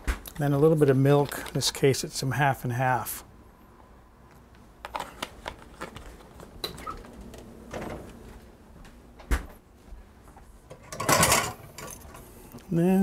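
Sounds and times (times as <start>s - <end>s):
kitchen items clicking and knocking: 10.7s - 12.2s.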